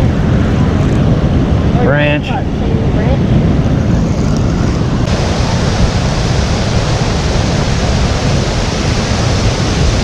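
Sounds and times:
river water rushing over rocks: 5.0s - 10.0s.

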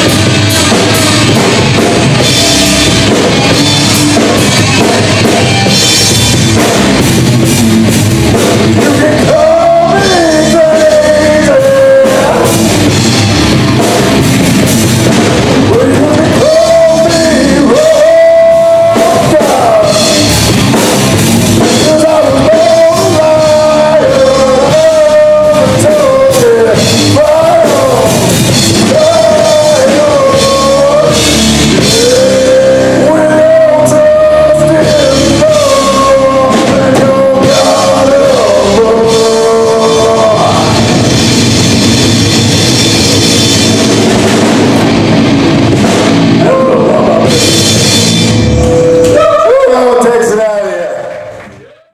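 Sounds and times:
rock band playing: 0.0s - 51.6s
man singing into a microphone: 8.7s - 12.7s, 15.6s - 20.2s, 21.6s - 40.9s, 46.4s - 47.4s.

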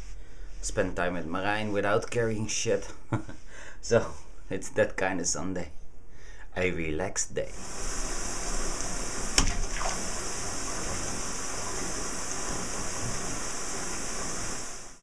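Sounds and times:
water pouring into a bathtub: 7.5s - 15.0s.

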